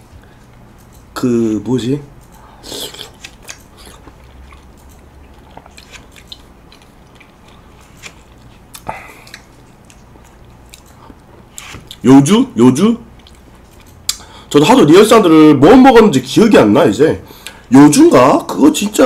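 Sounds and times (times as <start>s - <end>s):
mouth chewing wet smacks: 2.6s - 7.7s, 8.3s - 12.0s.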